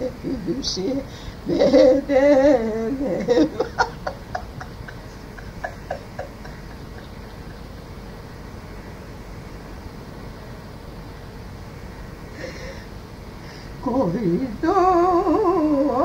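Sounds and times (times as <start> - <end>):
woman singing a lament: 0.0 - 4.6, 13.8 - 16.0
sobbing catches: 0.0 - 7.7
old recording hiss: 0.0 - 16.0.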